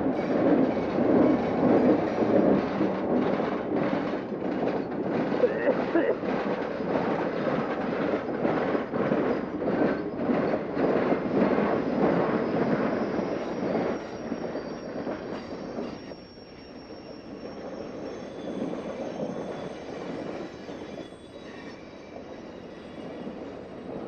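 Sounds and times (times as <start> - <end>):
train wheels rumbling on rails: 0.0 - 24.0
high wheel squeal: 11.5 - 24.0.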